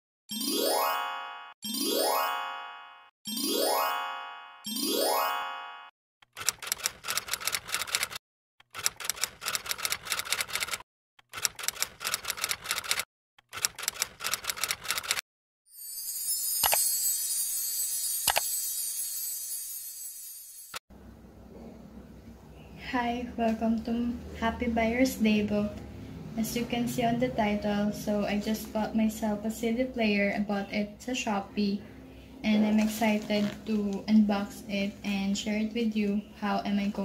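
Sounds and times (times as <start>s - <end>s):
rapid clicking: 6.3s - 15.2s
bright sparkling shimmer: 15.7s - 20.8s
rising chime-like glides: 15.7s - 20.8s.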